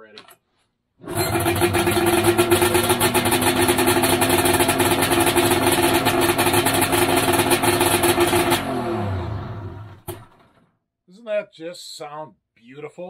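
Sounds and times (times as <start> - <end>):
snowmobile engine running: 1.1 - 10.2.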